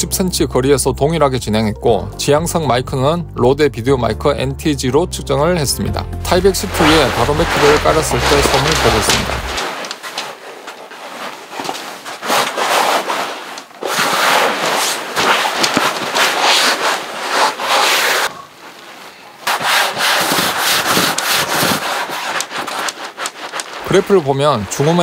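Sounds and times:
sleeping pad crinkling and rustling: 6.5s - 19.1s, 20.2s - 25.0s.

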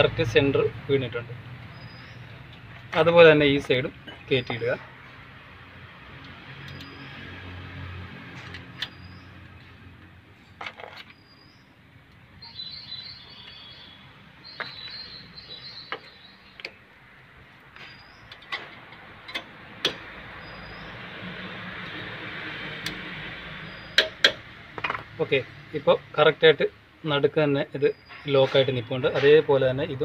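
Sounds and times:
birds chirping: 1.5s - 5.2s, 6.3s - 7.4s, 8.7s - 18.6s, 19.9s - 22.3s, 23.4s - 26.0s, 27.7s - 29.4s.

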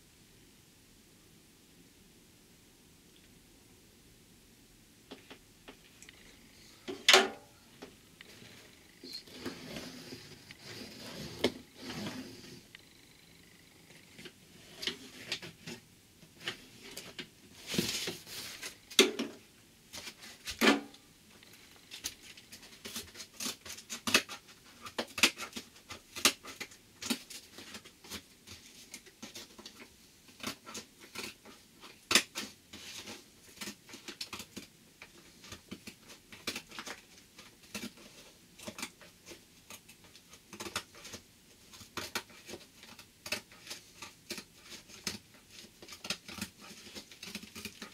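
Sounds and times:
cardboard being cut: 9.2s - 12.6s.

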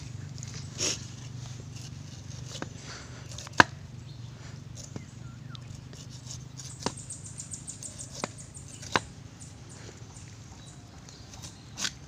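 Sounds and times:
knife crackling through rind: 0.0s - 3.8s, 4.7s - 9.1s, 11.0s - 12.0s.

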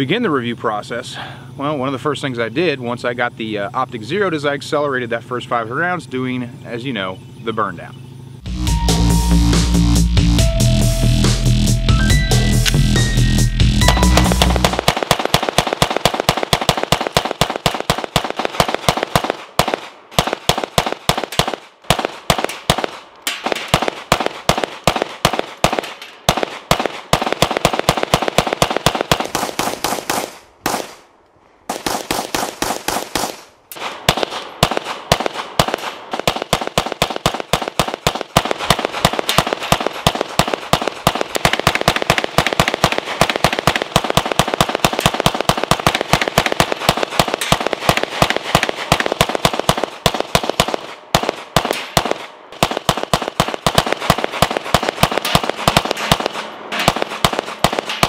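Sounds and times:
pistol shots fired rapidly: 13.8s - 31.0s, 31.7s - 58.0s.

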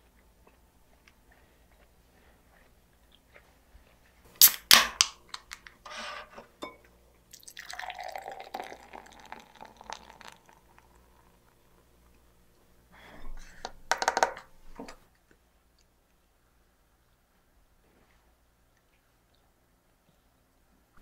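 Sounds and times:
beer pouring and foaming: 7.3s - 11.9s.

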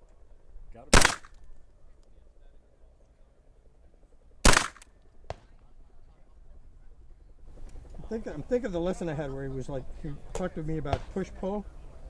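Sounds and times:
gunshot with echo: 0.9s - 1.4s, 4.4s - 5.5s.

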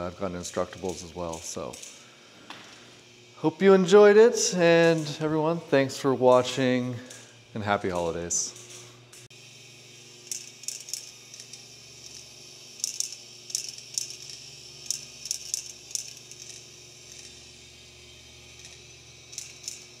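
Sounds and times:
steel balls clicking in marble machine: 10.2s - 17.4s, 18.6s - 20.0s.

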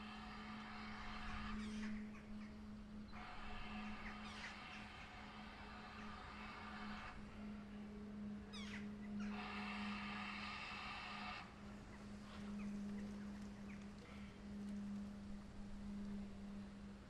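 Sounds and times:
steady low hum: 0.0s - 17.0s
steady many-toned sound: 0.0s - 17.0s
small birds chirping: 0.3s - 7.2s, 8.4s - 9.7s, 11.7s - 14.8s.

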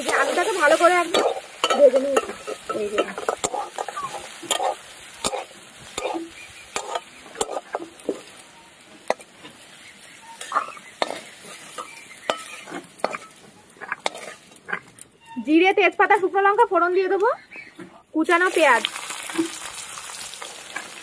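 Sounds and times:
metal spatula scraping pan: 0.0s - 15.7s
potatoes sizzling in oil: 0.0s - 17.2s, 18.2s - 21.0s
scraping onto steel plate: 10.2s - 15.4s.

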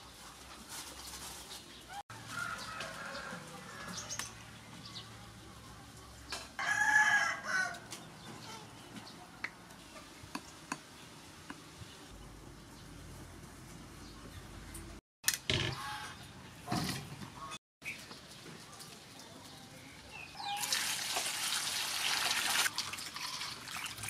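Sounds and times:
rooster crowing: 6.6s - 7.9s.

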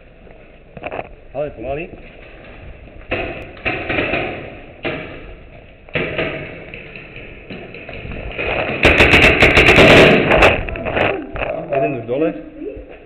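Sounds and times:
camera jolting thumps and rustle: 7.5s - 11.5s.

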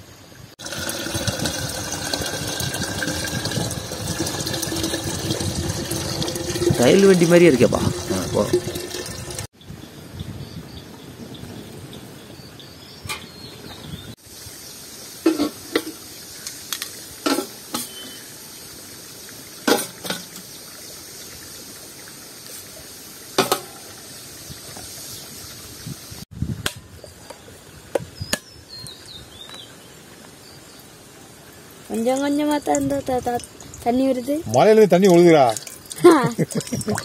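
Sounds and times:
steady hiss: 14.2s - 26.3s.

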